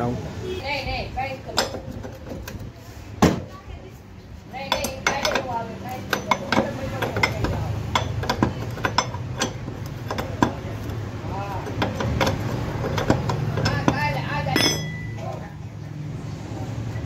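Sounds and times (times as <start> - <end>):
spanner clinking on bolt: 4.6 - 11.0, 11.6 - 15.4.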